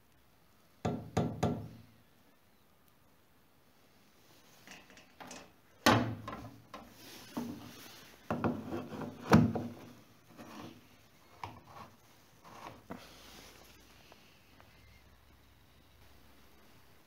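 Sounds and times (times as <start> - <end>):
knocks and rubbing at filler cap: 6.2 - 10.8.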